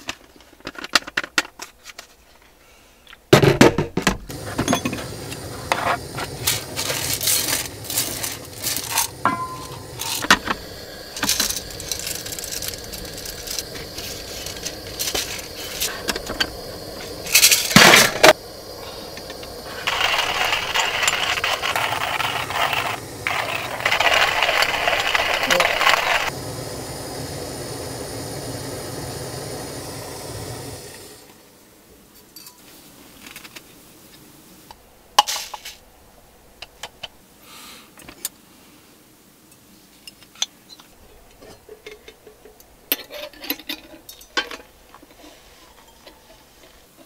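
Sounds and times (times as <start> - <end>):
hand coffee grinder milling: 6.0 - 18.4, 19.3 - 26.3
coffee beans rattling in containers: 6.2 - 18.4, 19.6 - 26.3.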